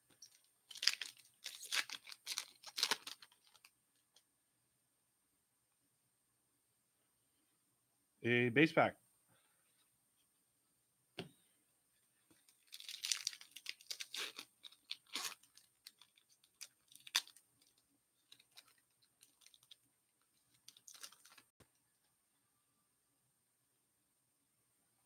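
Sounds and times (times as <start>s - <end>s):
plastic wrapper tearing and crinkling: 0.2s - 3.7s, 12.4s - 19.8s, 20.5s - 21.5s.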